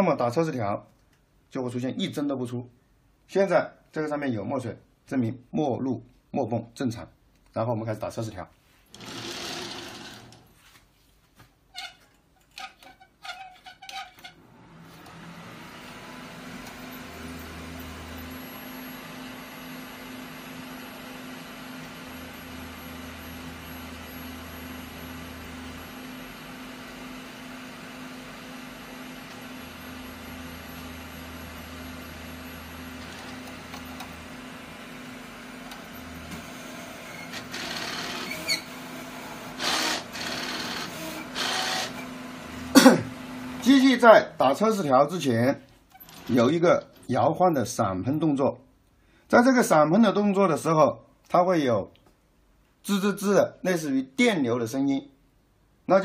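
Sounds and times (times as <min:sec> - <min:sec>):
printer carriage rumble: 0:08.9 - 0:10.5, 0:29.0 - 0:43.7
printer mechanical hum: 0:08.9 - 0:10.5, 0:14.4 - 0:45.2.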